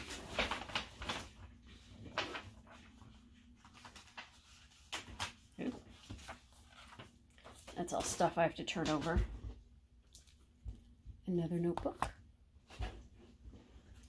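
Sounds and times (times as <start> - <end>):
paper rustling and tapping: 0.0 - 9.4, 11.6 - 13.1.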